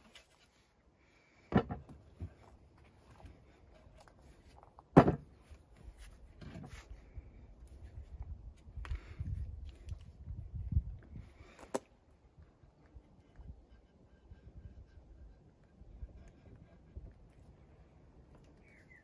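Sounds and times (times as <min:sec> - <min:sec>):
timber thumping on workbench: 0:01.5 - 0:02.0, 0:04.9 - 0:05.3.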